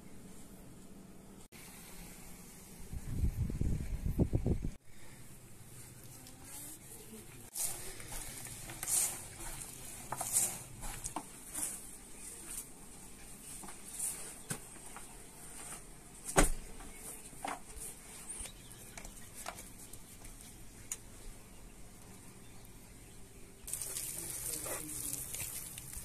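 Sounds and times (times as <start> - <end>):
hands kneading and patting dough: 5.7 - 21.2, 23.6 - 26.0.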